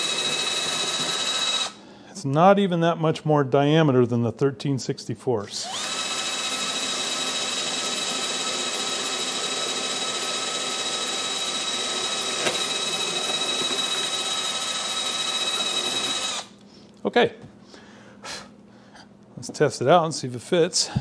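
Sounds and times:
cordless drill whining: 0:00.0 - 0:01.8, 0:05.6 - 0:16.6.

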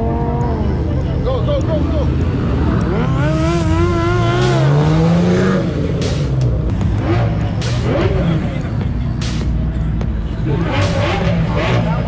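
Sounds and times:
car engine revving hard: 0:02.4 - 0:08.7, 0:10.4 - 0:12.0.

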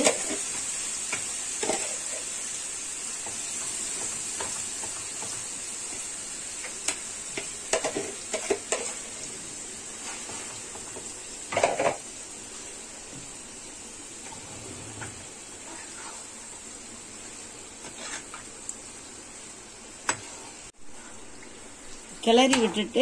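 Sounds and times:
chicken sizzling in a pan: 0:00.0 - 0:23.0
spatula scraping a pan: 0:14.2 - 0:16.4, 0:17.8 - 0:18.5.

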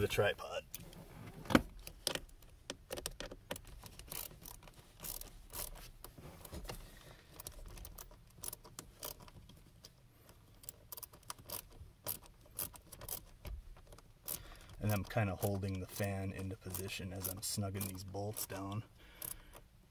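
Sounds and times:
metal ratchet clicks and rattles: 0:02.9 - 0:05.8, 0:07.3 - 0:09.9, 0:10.5 - 0:19.7.

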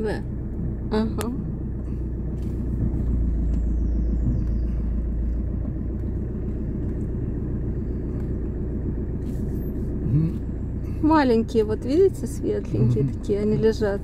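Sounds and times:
car engine rumble inside cabin: 0:00.0 - 0:14.0.

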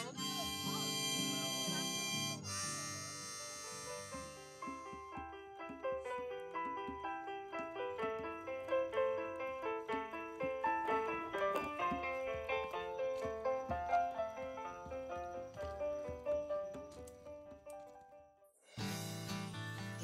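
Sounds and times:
digital piano playing: 0:00.0 - 0:17.7.

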